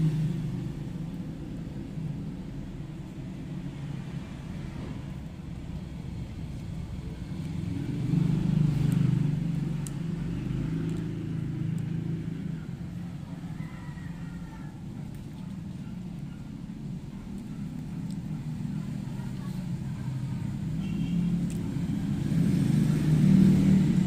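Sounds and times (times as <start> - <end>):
low engine rumble: 0.0 - 24.0.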